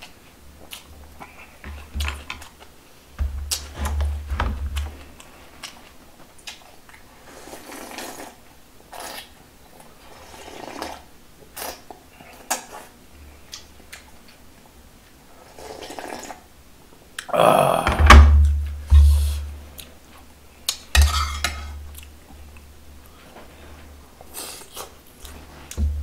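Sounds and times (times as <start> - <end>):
slurping broth: 7.2 - 9.4, 10.1 - 11.8, 15.4 - 16.4
tableware clattering: 21.0 - 21.8.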